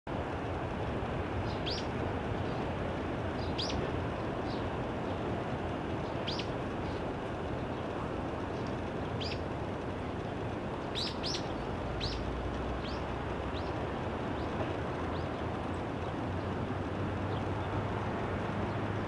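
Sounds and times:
low background rumble: 0.1 - 19.0
bird giving thin high calls: 10.9 - 12.2.

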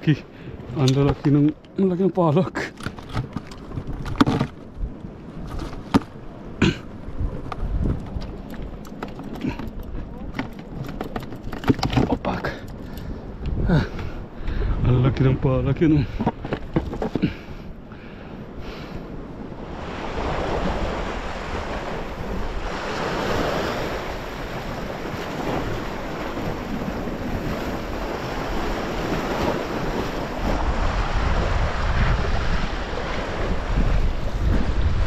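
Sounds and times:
wind buffeting microphone: 3.2 - 35.0
sea waves washing over rocks: 19.4 - 35.0.

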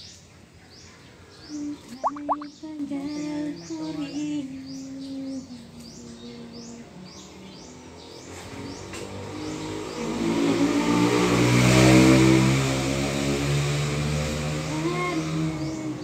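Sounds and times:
vehicle engine passing: 6.6 - 16.0.

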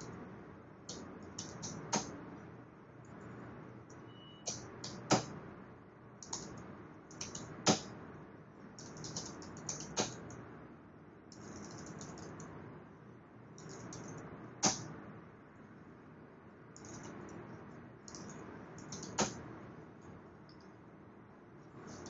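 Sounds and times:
typing on computer keyboard: 0.9 - 2.2, 6.2 - 7.8, 8.8 - 10.4, 11.3 - 12.5, 13.6 - 14.8, 16.8 - 17.4, 18.1 - 19.4.

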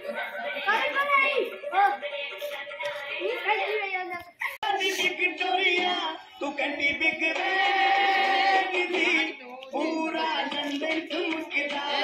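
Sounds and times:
person singing a song: 4.4 - 12.0.

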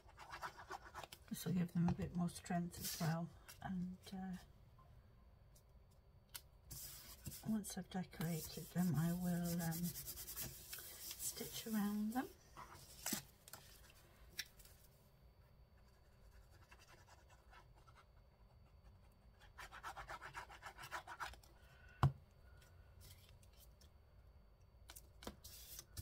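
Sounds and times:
paper rubbing and scratching: 8.2 - 13.2.

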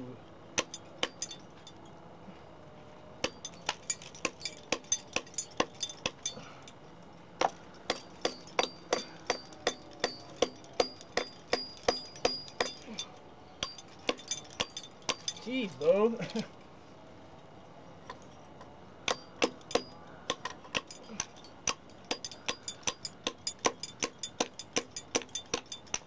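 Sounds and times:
high metallic ring: 0.6 - 2.0, 3.2 - 6.9, 7.5 - 15.7, 18.0 - 26.0
hammer striking steel piton: 3.2 - 6.4, 7.4 - 12.9, 19.0 - 26.0.

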